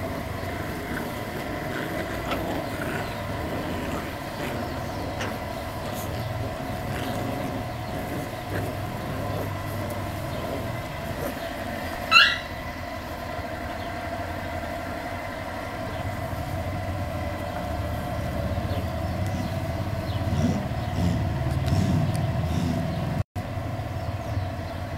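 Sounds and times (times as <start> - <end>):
puppy growls: 0.0 - 23.2
low mechanical rumble: 0.0 - 24.9
puppy yelp: 9.3 - 12.6.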